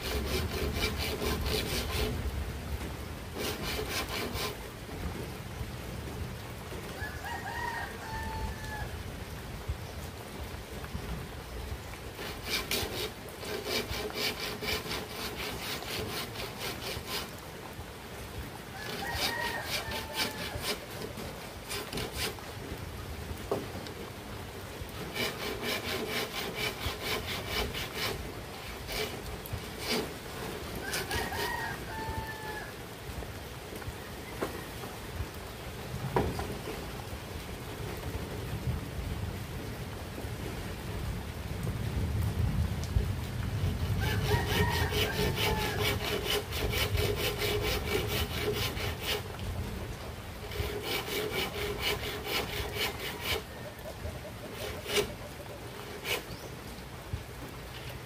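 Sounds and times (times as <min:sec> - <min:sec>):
hand saw cutting bamboo: 0:00.0 - 0:02.2, 0:03.4 - 0:04.6, 0:12.2 - 0:17.4, 0:18.9 - 0:22.4, 0:25.0 - 0:31.7, 0:44.0 - 0:49.3, 0:50.4 - 0:56.4
rooster crowing: 0:06.9 - 0:09.0, 0:18.7 - 0:20.9, 0:30.8 - 0:32.8, 0:44.0 - 0:46.0.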